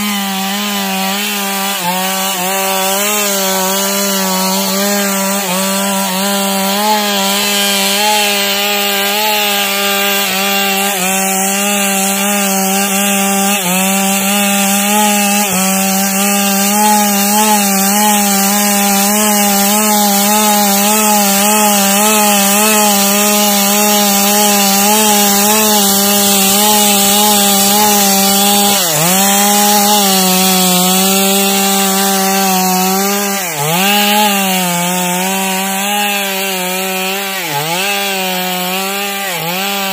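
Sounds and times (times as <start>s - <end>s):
chainsaw cutting log: 0.0s - 39.9s.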